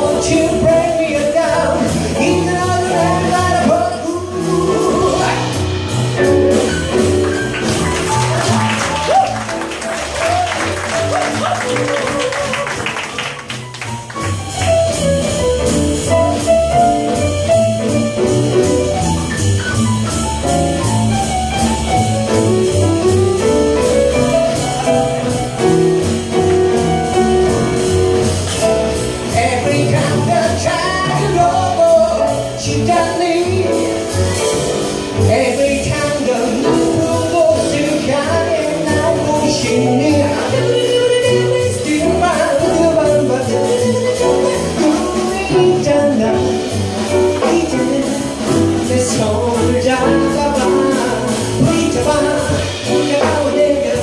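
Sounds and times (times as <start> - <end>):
man singing into microphone: 0.0 - 5.6, 29.3 - 34.5, 35.2 - 54.0
jazz band playing: 0.0 - 54.0.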